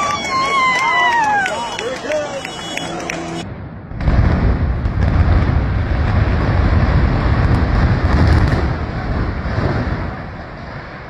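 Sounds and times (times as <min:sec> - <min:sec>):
building collapsing rumble: 0:03.4 - 0:11.0.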